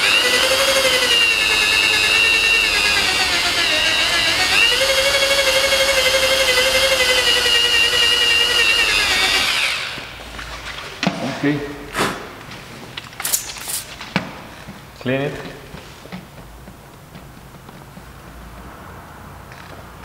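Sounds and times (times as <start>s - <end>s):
drill motor whine: 0.0s - 10.1s.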